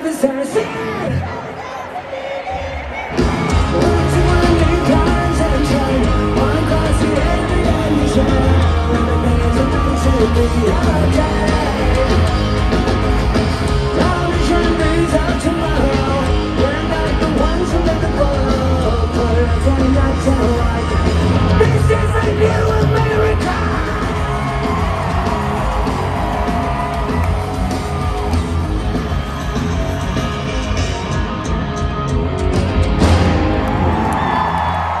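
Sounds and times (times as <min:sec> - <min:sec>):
person shouting and singing: 0:00.0 - 0:12.6, 0:13.8 - 0:28.4
live rock band playing: 0:02.5 - 0:35.0.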